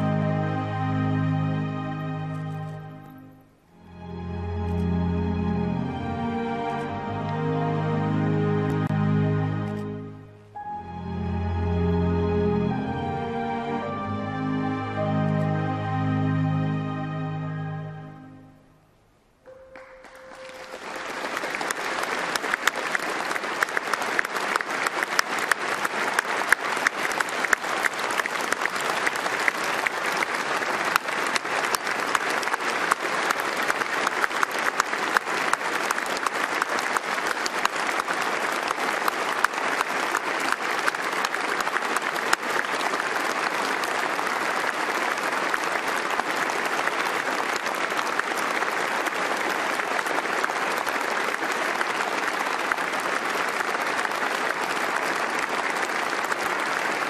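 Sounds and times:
large audience applauding: 19.5s - 57.0s.

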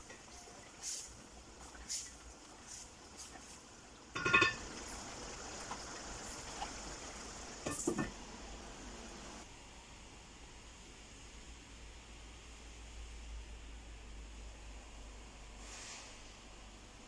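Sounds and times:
gravy simmering sizzle: 0.0s - 9.4s
glass lid clattering on pot: 4.2s - 4.7s, 7.6s - 8.2s
wooden spatula knocking metal pot: 4.2s - 4.7s.

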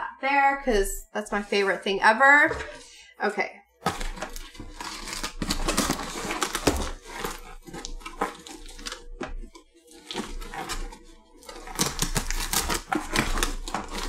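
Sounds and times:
fingers scraping packing tape: 3.9s - 9.1s, 9.9s - 14.0s.

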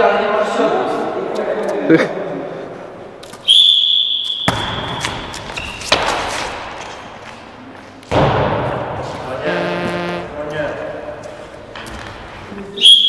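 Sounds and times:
handball thudding in echoing hall: 3.2s - 9.3s
whistle blast: 9.5s - 10.3s.

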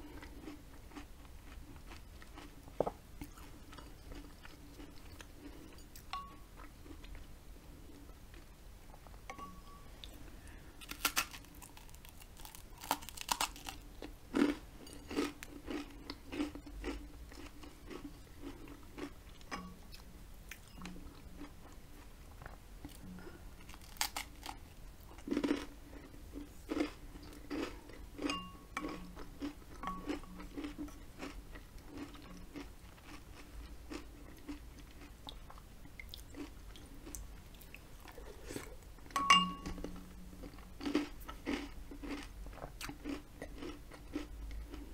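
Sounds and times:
person crunching toast: 10.8s - 19.1s, 23.6s - 26.1s, 40.4s - 44.8s.

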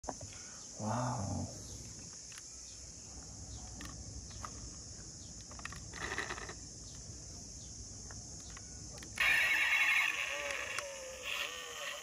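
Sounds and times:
toy car clicks and rustle: 5.5s - 6.6s, 8.4s - 12.0s
high-pitched insect drone: 8.5s - 12.0s.

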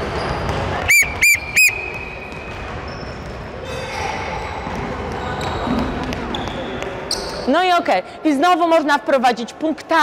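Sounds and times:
sports whistle blasts: 0.8s - 2.3s.

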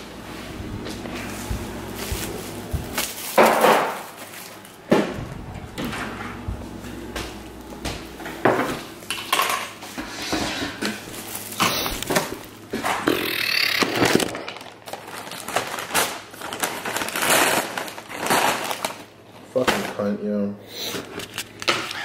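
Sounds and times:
paper bag rustling: 0.3s - 4.9s, 10.9s - 12.7s, 14.0s - 20.1s
food containers clattering on table: 2.0s - 5.2s, 8.2s - 14.8s, 20.9s - 22.0s.

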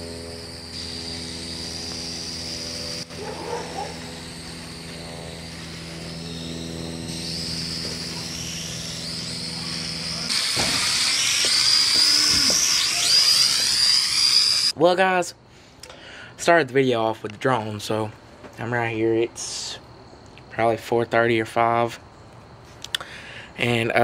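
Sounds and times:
drone motors whining: 0.0s - 14.8s.

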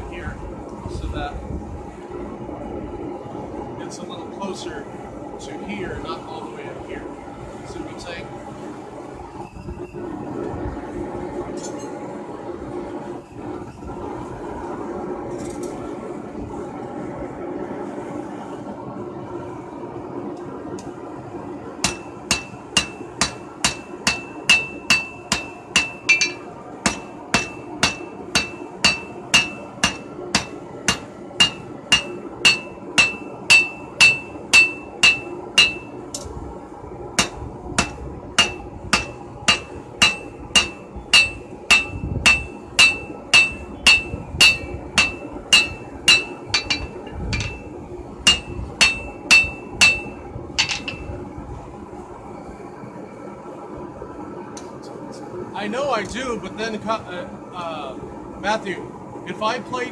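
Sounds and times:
hammer striking steel on anvil: 21.8s - 36.3s, 37.2s - 51.1s.

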